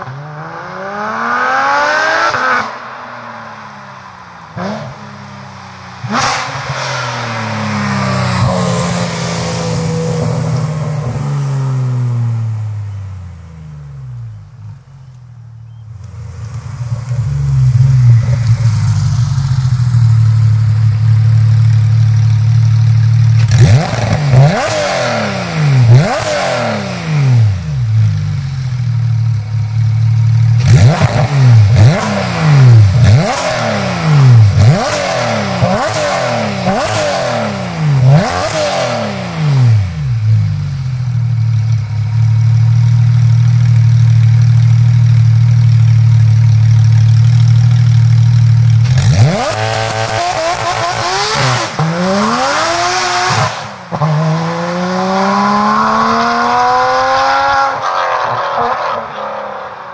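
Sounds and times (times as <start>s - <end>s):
car engine idling loudly: 16.0s - 24.1s, 39.8s - 49.3s.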